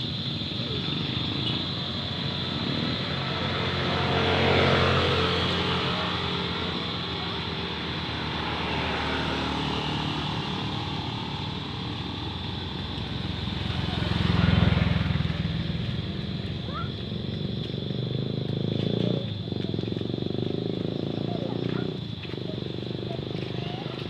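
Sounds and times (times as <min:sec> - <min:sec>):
motorcycles and vehicles passing: 0:00.0 - 0:24.0.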